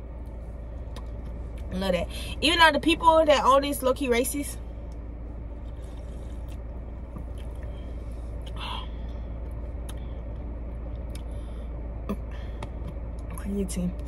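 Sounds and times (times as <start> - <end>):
car cabin hum: 0.0 - 14.0
person sipping and swallowing: 5.7 - 7.8.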